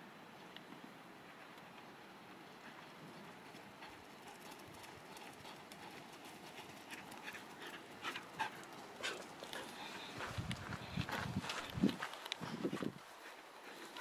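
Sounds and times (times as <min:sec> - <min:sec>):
dog panting: 0:03.5 - 0:11.6.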